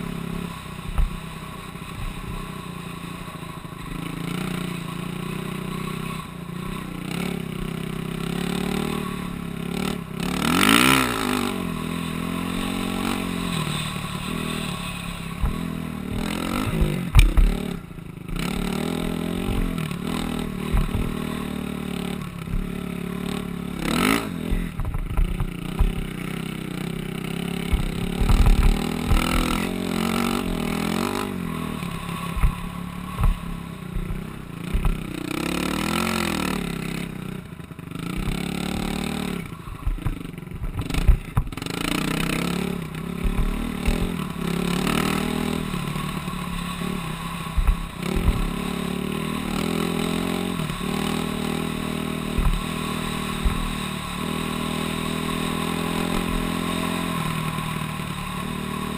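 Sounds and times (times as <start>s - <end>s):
off-road vehicle engine revving: 0.0s - 58.9s
vehicle thumping and rattling: 12.2s - 23.6s, 24.4s - 26.4s, 27.5s - 35.2s, 38.0s - 54.5s.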